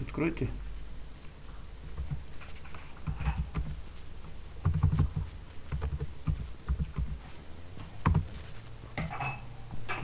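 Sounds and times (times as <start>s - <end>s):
computer keyboard typing: 1.8s - 7.3s, 8.0s - 8.3s.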